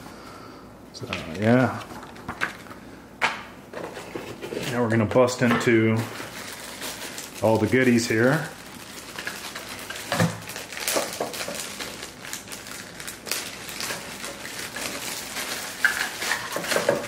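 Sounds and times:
plastic bags crinkling: 0:04.7 - 0:17.0
small parts clattering: 0:13.3 - 0:17.0.

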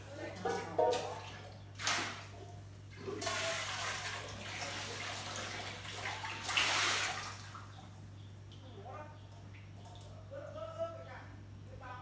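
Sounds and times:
water pouring into plastic basin: 0:03.0 - 0:07.7.

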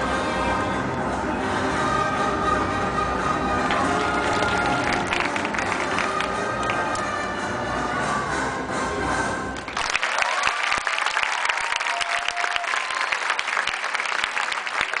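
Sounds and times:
floor exercise music: 0:00.0 - 0:09.7
audience applauding: 0:03.7 - 0:07.1, 0:09.6 - 0:15.0.

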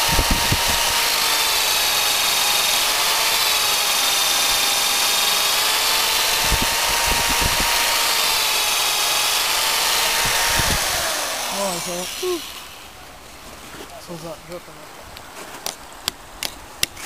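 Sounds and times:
cordless drill whining: 0:00.0 - 0:13.0.

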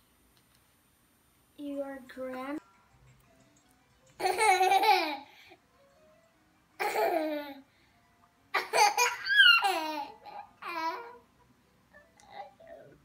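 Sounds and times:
child laughing and babbling: 0:08.6 - 0:11.2
child squealing: 0:09.0 - 0:09.8.

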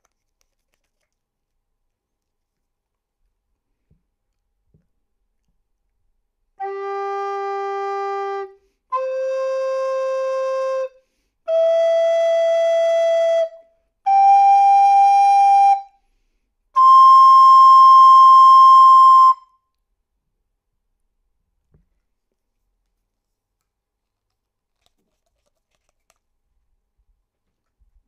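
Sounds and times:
breaths: 0:08.6 - 0:08.9, 0:11.0 - 0:11.4, 0:16.0 - 0:16.6.

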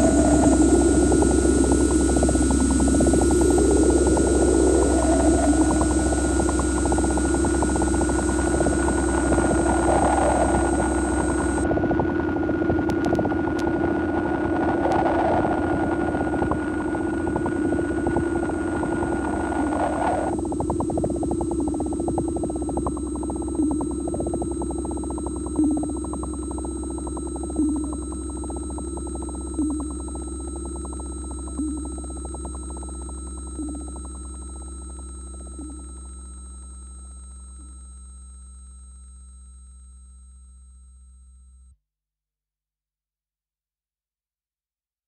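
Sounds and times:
noisy rumble: 0:00.0 - 0:11.6
soft synth pulse: 0:00.0 - 0:11.7, 0:17.6 - 0:41.5
synthesizer drone with sine tones: 0:00.0 - 0:41.8.

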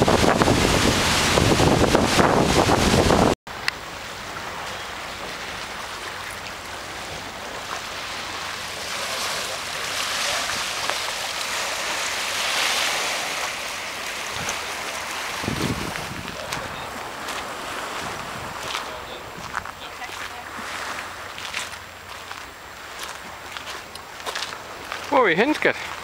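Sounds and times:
waves lapping on pebbly shore: 0:00.0 - 0:26.0.

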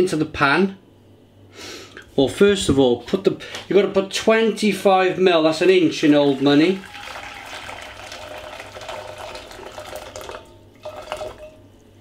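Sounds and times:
water pouring into saucepan: 0:05.6 - 0:12.0.

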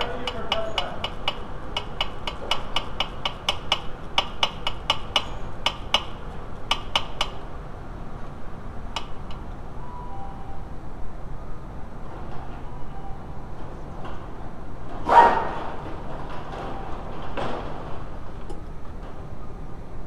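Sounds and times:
sharp metallic clicks: 0:00.0 - 0:07.4.

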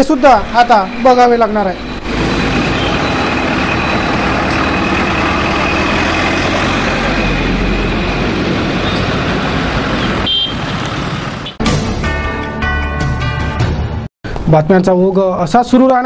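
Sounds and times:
bus engine running: 0:00.0 - 0:11.6
road noise: 0:00.0 - 0:11.6.

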